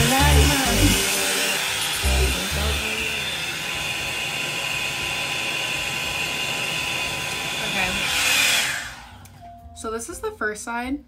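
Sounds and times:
music with bass beat: 0:00.0 - 0:01.0
hot air brush hissing: 0:00.0 - 0:03.7.

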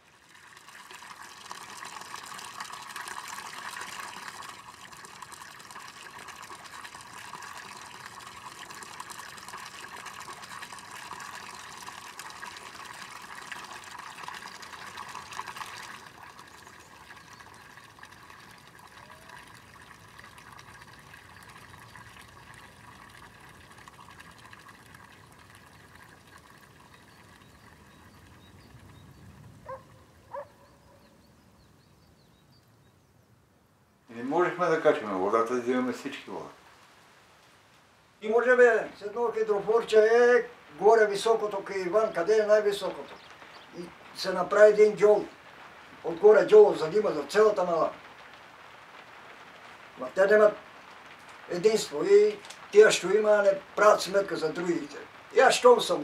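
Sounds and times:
water splashing into basin: 0:00.0 - 0:29.0.

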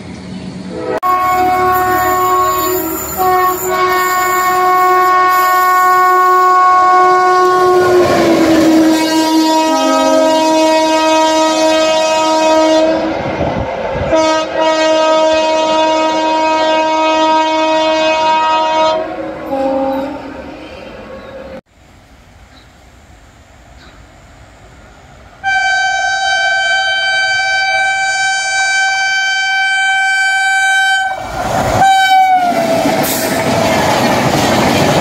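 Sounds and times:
locomotive horn blasts: 0:00.7 - 0:13.2, 0:14.1 - 0:20.3, 0:25.4 - 0:32.8.

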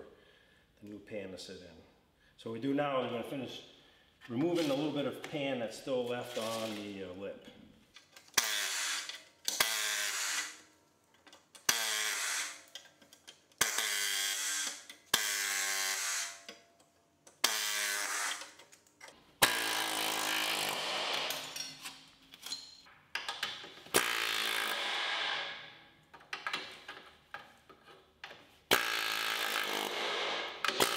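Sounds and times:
pneumatic grinder whine: 0:08.4 - 0:10.6, 0:11.6 - 0:12.7, 0:13.6 - 0:16.4, 0:19.4 - 0:21.6, 0:23.9 - 0:25.7, 0:28.7 - 0:30.9.

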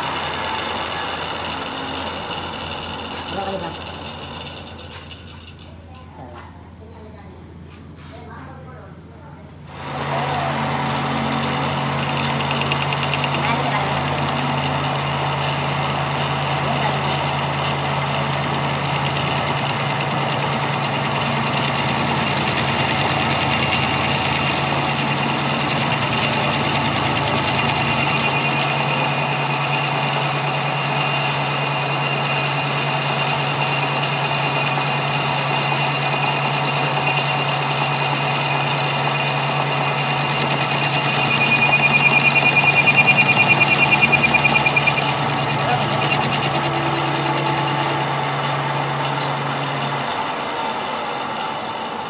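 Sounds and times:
metal lathe humming: 0:00.0 - 0:05.6, 0:09.7 - 0:50.9
high cutting whine: 0:10.9 - 0:48.4.

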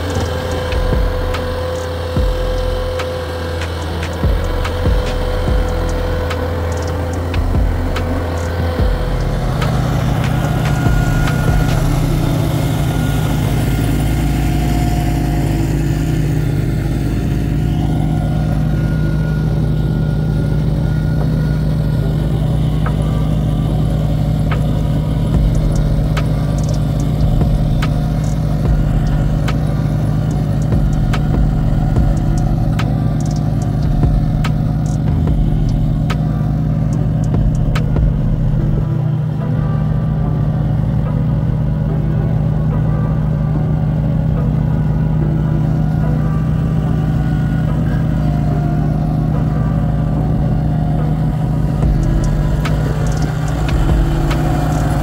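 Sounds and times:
roller compacting crushed asphalt: 0:00.0 - 0:55.0
roller engine running: 0:00.0 - 0:55.0
sharp clicks: 0:03.0 - 0:08.6, 0:25.6 - 0:29.7, 0:30.3 - 0:36.3.

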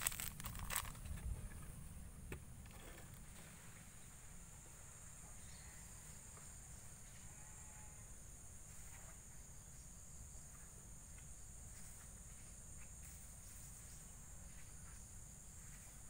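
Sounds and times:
low outdoor rumble: 0:00.0 - 0:06.3
insects buzzing: 0:00.0 - 0:16.0.

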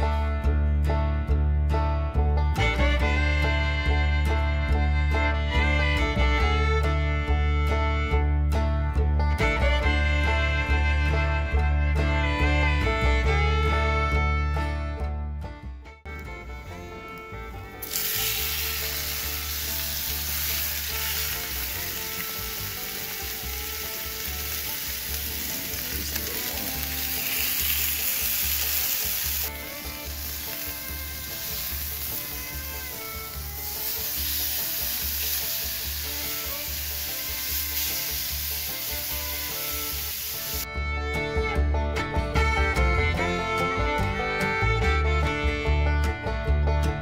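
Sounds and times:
meat sizzling in a pan: 0:17.8 - 0:40.6.

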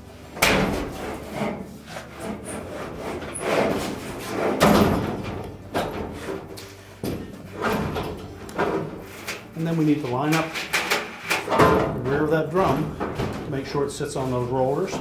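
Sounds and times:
metal drum clattering and scraping: 0:00.4 - 0:15.0.

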